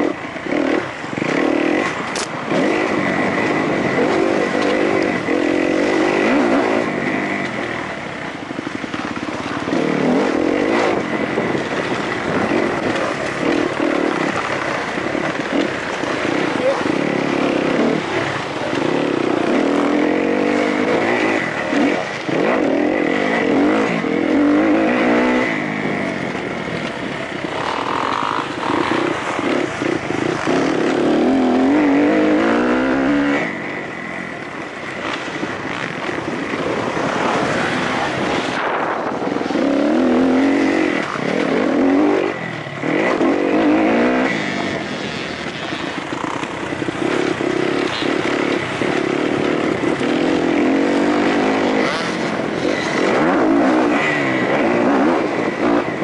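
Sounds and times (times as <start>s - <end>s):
motocross engine revving: 0.0s - 34.0s, 34.6s - 56.0s
wind and track noise: 0.0s - 56.0s.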